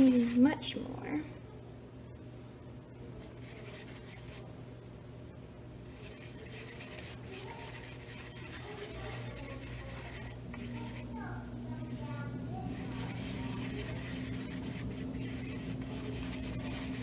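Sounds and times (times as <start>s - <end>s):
paintbrush scrubbing paint: 0.0s - 0.7s, 3.2s - 4.5s, 5.8s - 17.0s.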